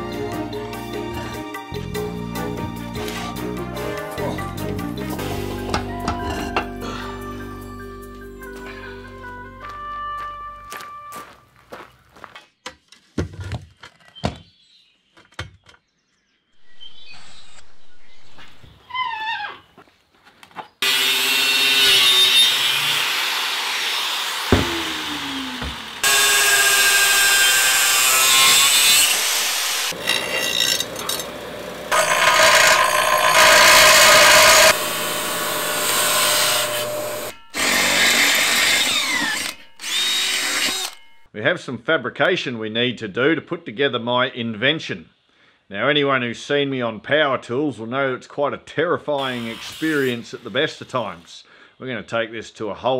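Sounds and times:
drill boring into steel: 0:20.8 - 0:41.2, 0:49.2 - 0:50.2
angle grinder cutting steel: 0:20.8 - 0:41.3, 0:49.2 - 0:50.6.

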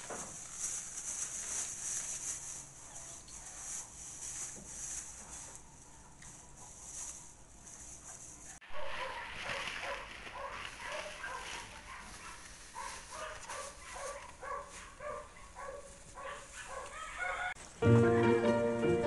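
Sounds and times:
dog yipping and whimpering: 0:08.7 - 0:17.6.

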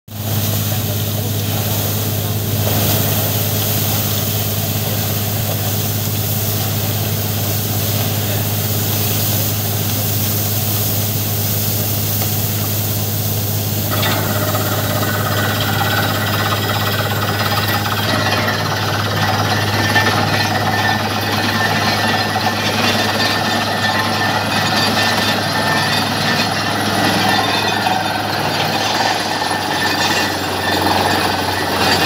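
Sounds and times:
drilling rig engine drone: 0:13.5 - 0:32.0
high mechanical tone: 0:13.6 - 0:32.0.

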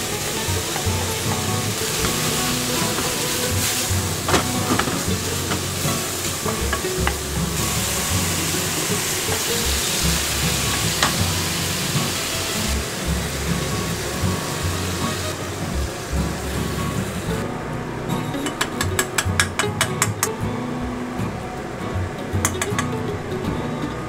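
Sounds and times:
meat and onion sizzling in pan: 0:00.0 - 0:17.4
chopsticks clicking against pan: 0:18.4 - 0:20.4, 0:22.4 - 0:23.0.

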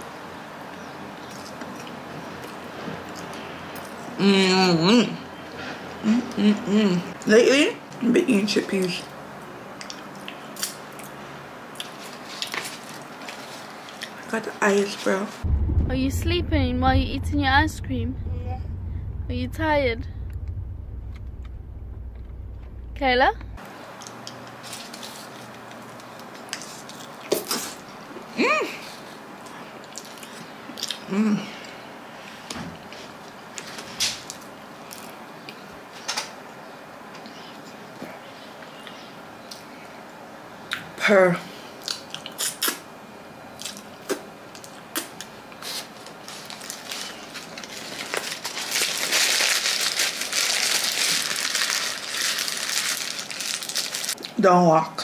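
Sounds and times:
person humming mm: 0:06.0 - 0:07.1
plastic wrap crinkling: 0:45.7 - 0:54.2.

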